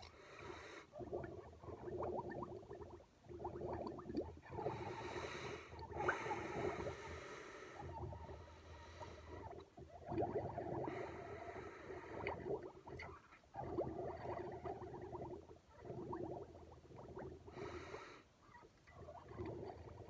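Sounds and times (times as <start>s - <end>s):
milk bubbling through straw: 0.8s - 7.0s, 9.2s - 17.6s, 18.8s - 20.0s.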